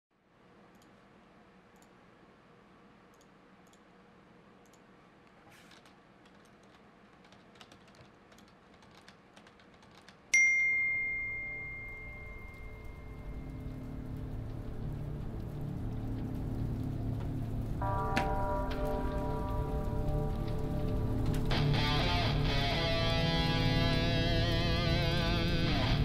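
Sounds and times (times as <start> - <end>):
keyboard typing clicks: 5.6 - 10.4
bell-like ding: 10.4 - 13.9.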